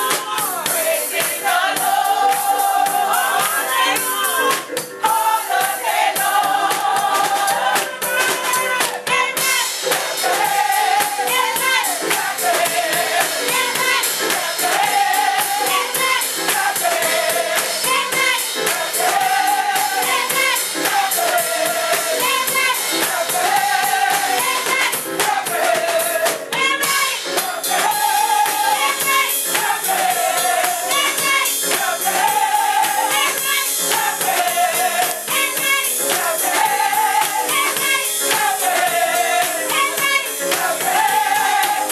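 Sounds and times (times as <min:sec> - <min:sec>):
steady percussion beat: 0:00.0 - 0:41.9
women's choir singing gospel: 0:00.0 - 0:41.9
handclaps: 0:06.7 - 0:09.2, 0:09.9 - 0:10.2, 0:11.0 - 0:15.0, 0:29.6 - 0:29.8, 0:32.8 - 0:40.9.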